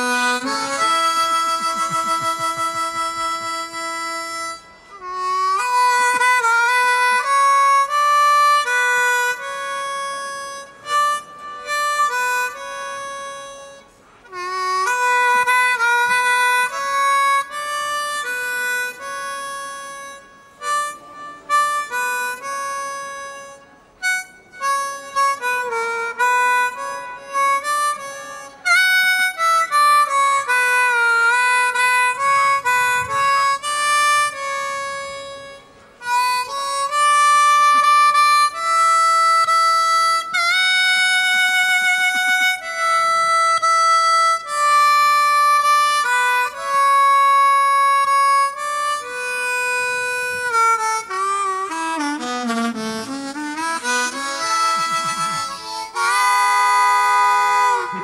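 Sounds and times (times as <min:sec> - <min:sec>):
blues harmonica: 0:00.0 - 0:58.0.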